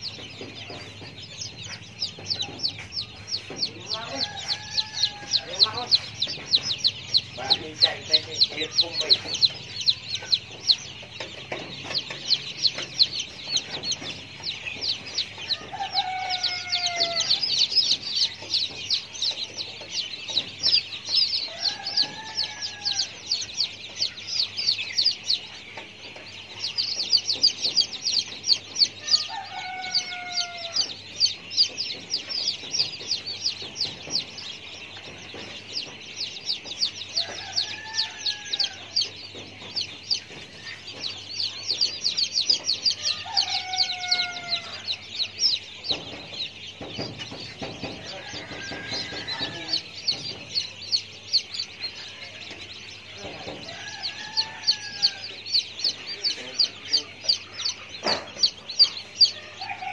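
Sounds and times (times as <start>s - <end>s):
high-pitched chick chirping: 0.0s - 59.9s
rooster crowing: 3.0s - 9.9s, 14.8s - 18.6s, 20.7s - 23.6s, 28.9s - 31.9s, 36.9s - 39.2s, 41.7s - 46.0s, 47.2s - 50.9s, 53.2s - 55.6s, 58.8s - 59.9s.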